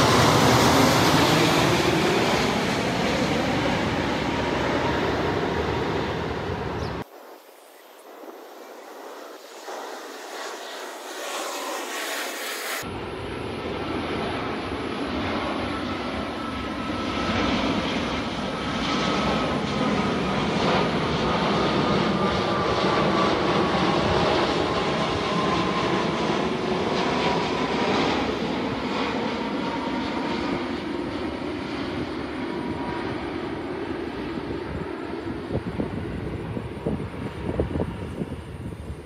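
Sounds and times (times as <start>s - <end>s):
jet engines rumbling overhead: 0.0s - 39.0s
thin whine falling in pitch: 7.7s - 12.9s.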